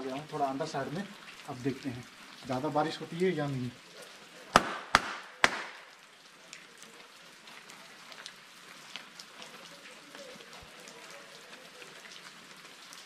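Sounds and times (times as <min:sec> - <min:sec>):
hand claps echoing: 0:04.6 - 0:05.8
water drops dripping: 0:04.6 - 0:06.7.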